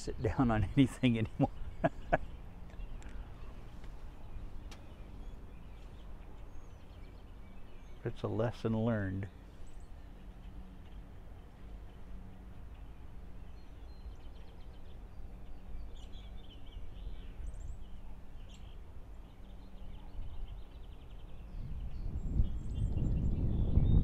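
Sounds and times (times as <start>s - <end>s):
faint bird chirps: 8.9s - 24.0s.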